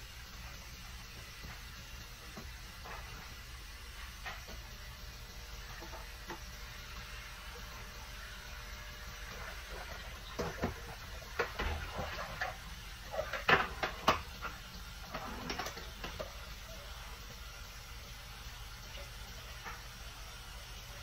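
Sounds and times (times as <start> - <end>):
kitchen things clattering: 9.8 - 16.4.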